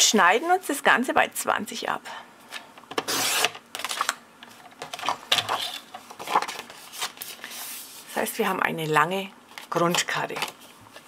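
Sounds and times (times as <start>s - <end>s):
card rustling and scraping: 2.6s - 4.2s, 4.8s - 8.1s.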